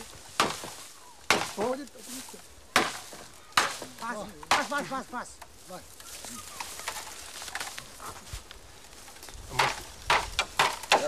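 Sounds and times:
machete chopping bamboo: 0.0s - 1.8s, 2.7s - 4.9s, 9.5s - 11.0s.

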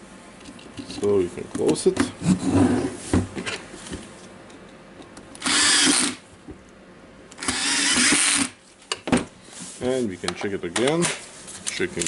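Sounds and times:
cordless drill running: 5.4s - 6.2s, 7.4s - 8.5s.

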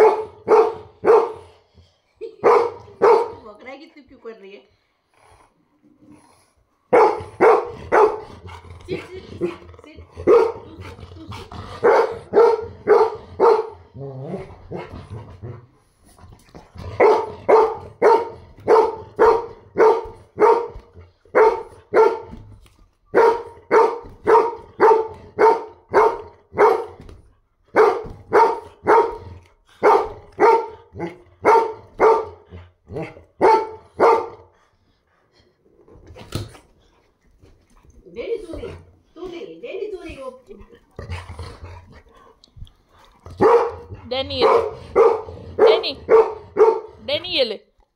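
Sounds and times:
dog barking: 0.0s - 1.6s, 2.4s - 3.5s, 6.9s - 8.3s, 10.2s - 10.7s, 11.8s - 13.9s, 17.0s - 22.4s, 23.1s - 27.0s, 27.7s - 34.5s, 43.4s - 47.1s.

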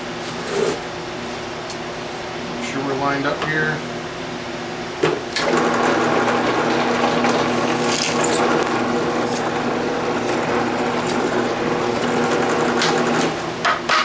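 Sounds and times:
drill press motor hum: 5.3s - 13.6s
drill bit cutting wood: 7.8s - 13.3s.

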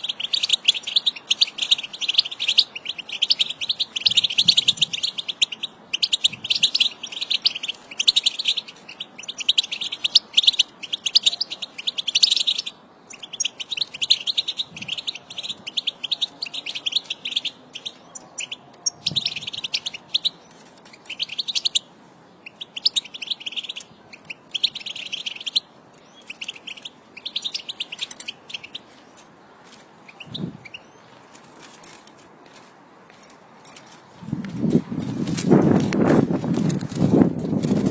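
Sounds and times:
goldfinches twittering: 0.0s - 20.3s, 22.4s - 28.8s.

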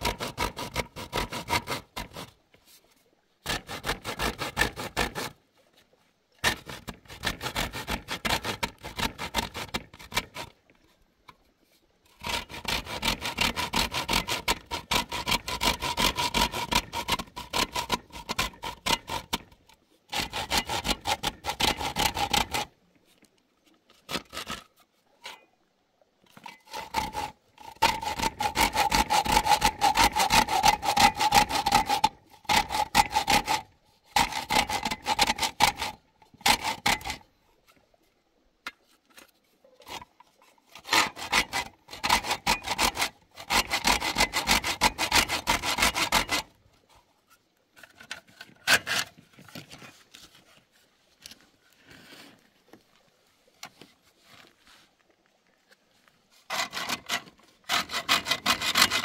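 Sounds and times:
hand saw cutting: 0.0s - 2.4s, 3.4s - 5.4s, 6.4s - 10.6s, 12.1s - 22.7s, 24.0s - 24.8s, 26.4s - 37.3s, 39.8s - 46.6s, 47.8s - 49.9s, 56.4s - 59.0s.

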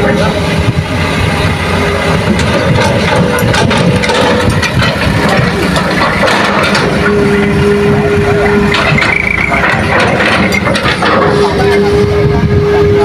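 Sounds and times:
diesel engines rumbling: 0.0s - 13.0s
steady engine whine: 0.0s - 13.0s
clatter: 2.3s - 7.2s, 8.5s - 11.8s.

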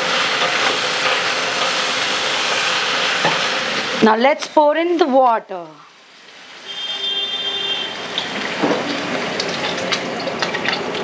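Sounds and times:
water poured into hot pan: 6.0s - 11.0s.

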